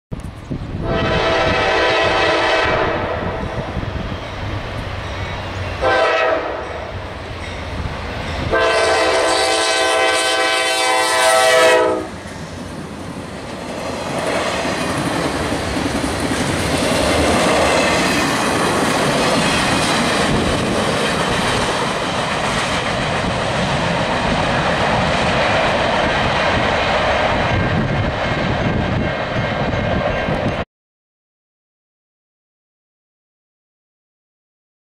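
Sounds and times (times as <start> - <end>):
train wheels on rails: 0.1 - 30.6
locomotive air horn blasts: 0.8 - 3.7, 5.8 - 7.0, 8.5 - 12.2
freight cars clickety-clack: 12.2 - 30.6.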